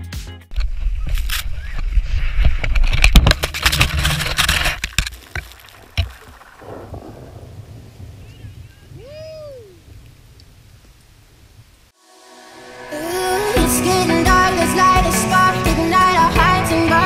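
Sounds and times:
wind and snow scraping microphone: 0.5 - 11.9.

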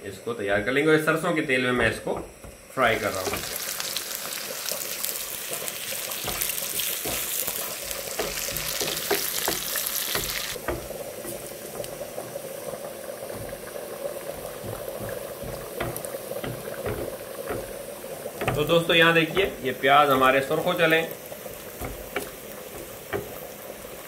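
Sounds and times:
onions sizzling in oil: 0.4 - 24.0
wooden spoon scraping pan: 6.1 - 11.9, 18.4 - 23.5.

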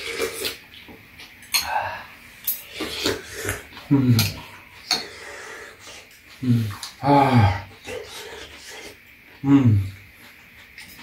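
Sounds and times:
low voice murmuring: 9.4 - 10.0.

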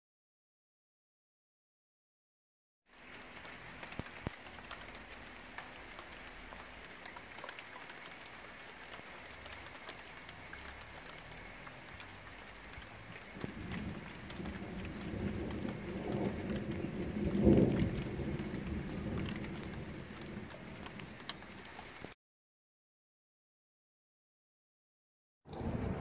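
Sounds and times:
rain falling: 2.9 - 22.2, 25.5 - 26.0
raindrops ticking: 2.9 - 22.2.

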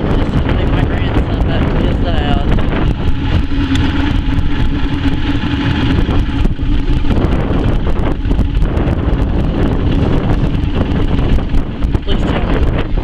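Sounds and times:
motorboat engine humming: 0.0 - 13.0
wind buffeting microphone: 0.0 - 13.0.

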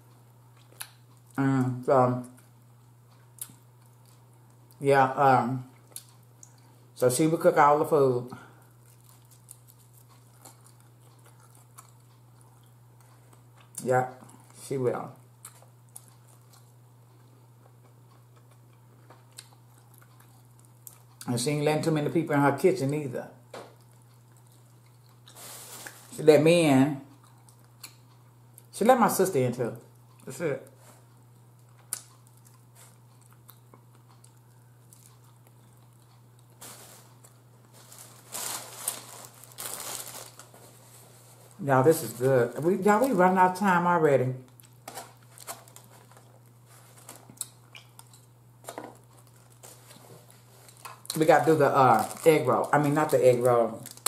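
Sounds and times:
person chewing: 0.0 - 1.4, 2.2 - 4.8, 5.7 - 6.8, 8.6 - 14.6, 15.2 - 21.3, 23.7 - 26.1, 27.1 - 28.7, 31.0 - 41.6, 44.5 - 54.0
steady low hum: 0.0 - 54.0
chewing mouth clicks and smacks: 0.5 - 1.4, 8.8 - 13.8, 15.4 - 21.3, 31.4 - 36.6, 47.2 - 48.3.

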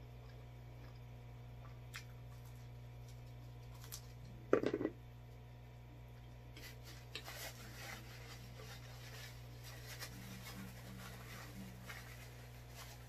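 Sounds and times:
person chewing: 0.0 - 3.6
low electrical hum: 0.0 - 13.0
crust tearing clicks and rustles: 2.0 - 4.3.

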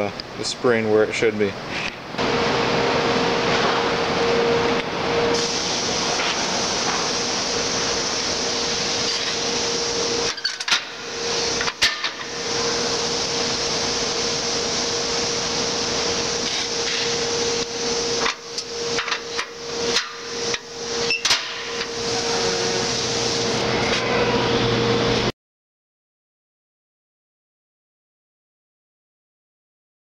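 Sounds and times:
rushing machine hum: 2.1 - 21.1.

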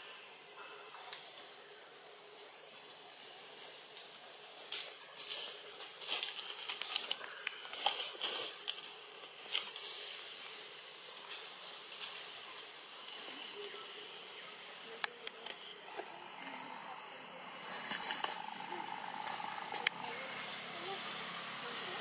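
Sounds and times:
small clicks and rustles: 2.7 - 13.6
high-pitched hiss: 5.6 - 22.0.

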